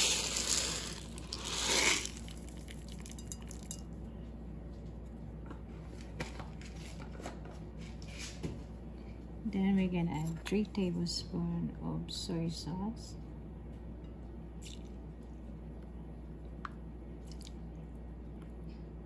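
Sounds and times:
peppercorns rattling into a bowl: 0:00.0 - 0:03.8.

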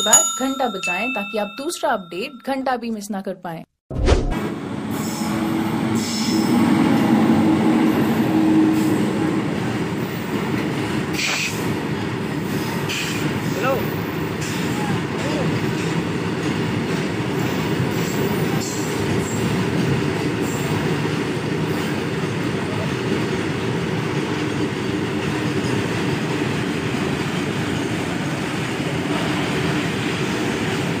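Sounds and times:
train wheels rumbling on rail: 0:04.5 - 0:31.0
high wheel squeals: 0:04.9 - 0:09.1.

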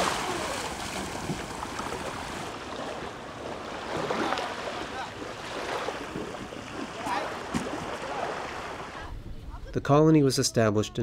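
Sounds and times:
small waves lapping shore: 0:00.0 - 0:09.2.

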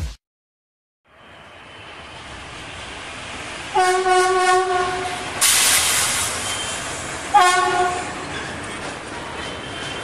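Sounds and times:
passing trains noise: 0:01.1 - 0:10.0
electric locomotive horn: 0:03.7 - 0:05.3, 0:07.3 - 0:08.1
loud hiss burst: 0:05.4 - 0:06.9.

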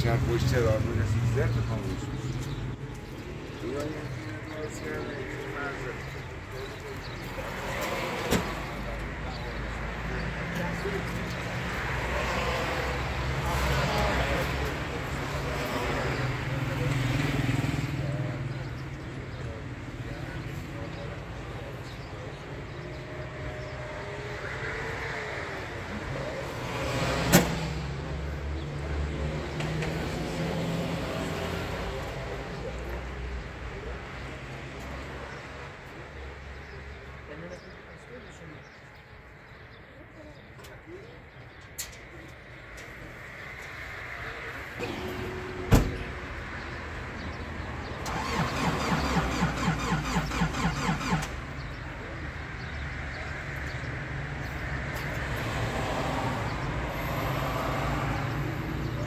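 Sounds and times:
truck door slamming: 0:44.8 - 0:46.2
engine cranking by starter: 0:48.0 - 0:51.8.

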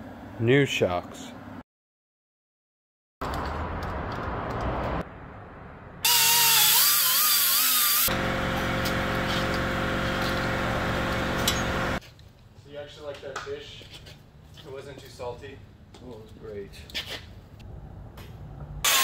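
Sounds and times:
die grinder whining: 0:06.1 - 0:12.0.

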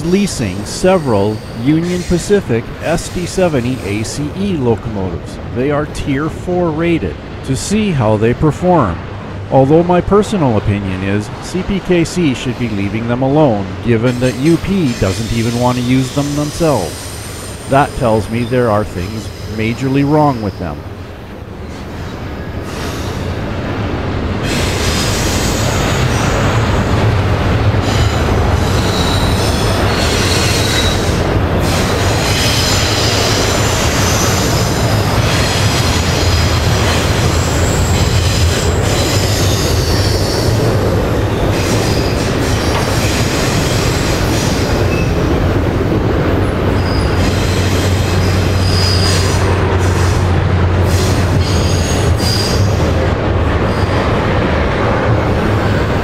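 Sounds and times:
freight train rumbling past: 0:00.0 - 0:56.0
train wheels squealing: 0:00.8 - 0:02.4, 0:14.1 - 0:20.8, 0:21.7 - 0:23.4, 0:24.4 - 0:26.9, 0:27.8 - 0:45.3, 0:46.7 - 0:50.2, 0:50.8 - 0:52.9.

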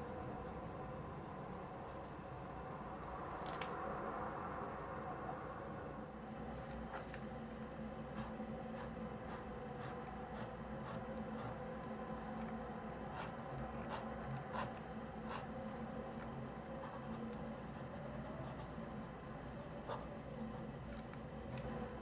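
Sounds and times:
steady low hum: 0:00.0 - 0:22.0
fountain pen writing on paper: 0:13.1 - 0:15.5.

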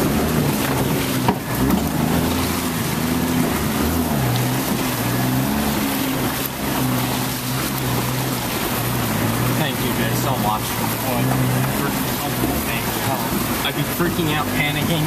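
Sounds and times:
car engine at low revs: 0:00.0 - 0:15.0
water sloshing and splashing: 0:00.0 - 0:15.0.

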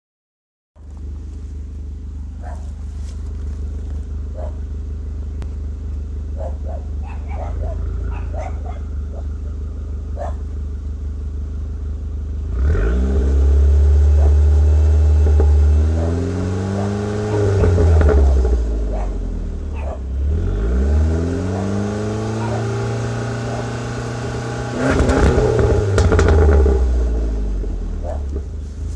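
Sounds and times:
car engine idling and revving: 0:00.8 - 0:28.9.

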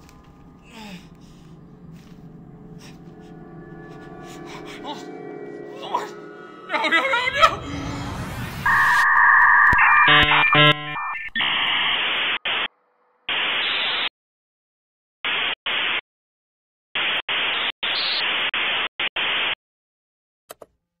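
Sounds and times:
static hiss bursts: 0:17.0 - 0:19.6.

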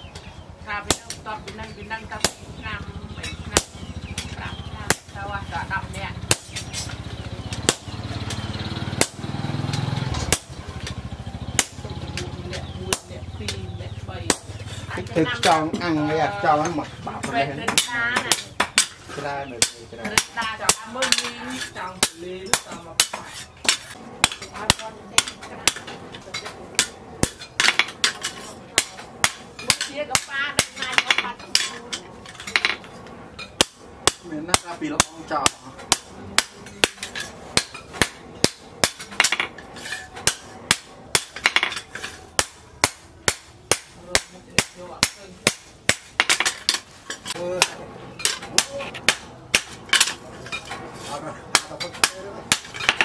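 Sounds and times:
hammer striking hot metal on anvil: 0:07.6 - 0:08.0, 0:09.0 - 0:09.3, 0:10.2 - 0:10.9, 0:11.6 - 0:12.3, 0:17.7 - 0:31.8, 0:33.4 - 0:50.8, 0:51.5 - 0:53.0.

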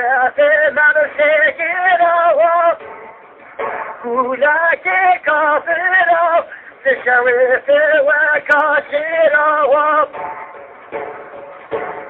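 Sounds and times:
man singing a hymn: 0:00.0 - 0:02.8, 0:04.0 - 0:10.2.

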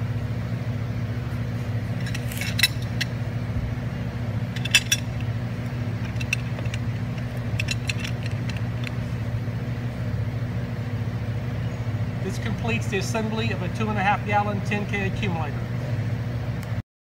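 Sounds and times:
low hum: 0:00.0 - 0:16.8
metallic clinks of a wrench: 0:04.6 - 0:05.2, 0:06.0 - 0:08.9.

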